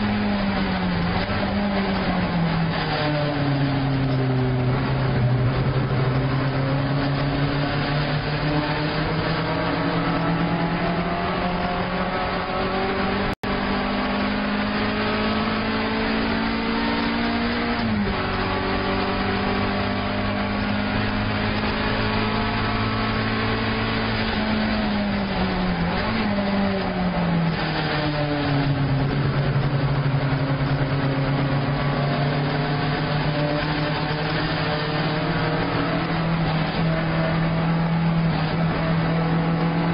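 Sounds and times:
car engine revving in cabin: 0.0s - 39.9s.

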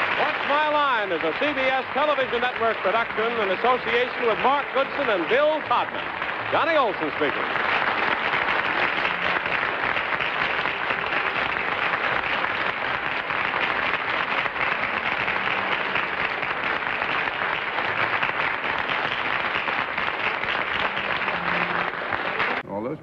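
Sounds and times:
audience applauding: 0.0s - 22.6s.

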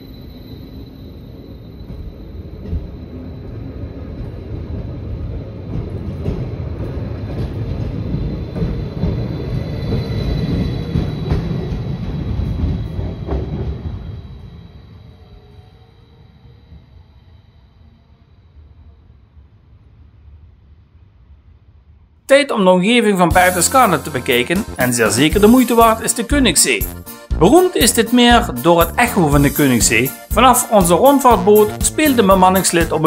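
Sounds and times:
train wheels and motors rumbling: 0.0s - 20.7s.

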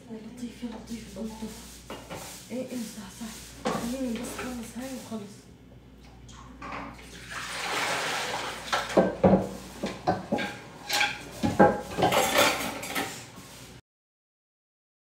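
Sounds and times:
tap water running into sink: 6.3s - 10.4s
dishes clattering: 6.6s - 7.0s, 8.6s - 13.3s.

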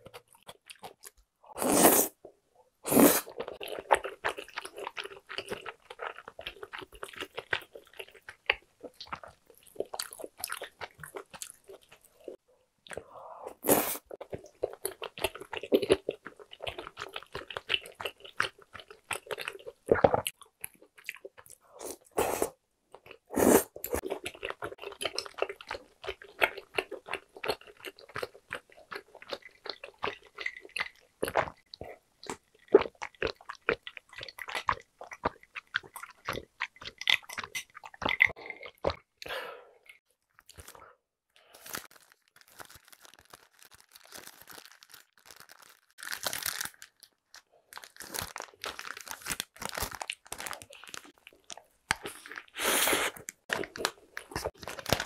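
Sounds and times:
person chewing: 0.0s - 2.2s, 2.8s - 40.8s, 41.6s - 55.0s
paper wrapper rustling: 41.6s - 47.1s, 47.8s - 51.1s.

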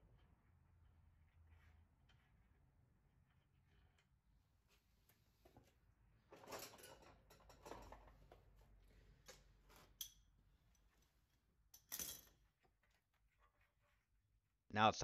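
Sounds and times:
tools clicking and clattering: 6.3s - 8.6s, 9.2s - 11.1s, 11.7s - 12.7s.

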